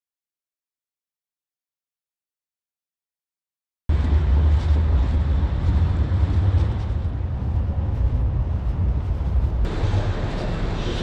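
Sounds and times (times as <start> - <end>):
city street noise: 3.9 - 11.0
wind buffeting microphone: 3.9 - 11.0.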